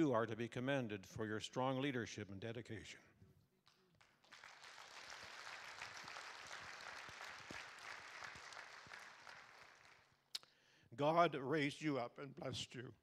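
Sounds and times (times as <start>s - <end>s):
crowd applauding: 4.0s - 10.2s.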